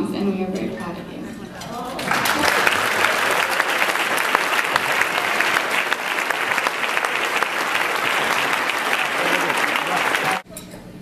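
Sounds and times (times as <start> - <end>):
audience applauding: 1.9 - 10.4.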